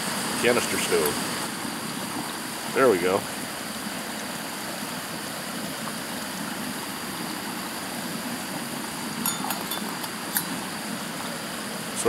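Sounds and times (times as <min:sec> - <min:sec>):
stove burning with noisy rush: 0:00.0 - 0:12.0
metal lid clinking on pot: 0:09.2 - 0:10.6.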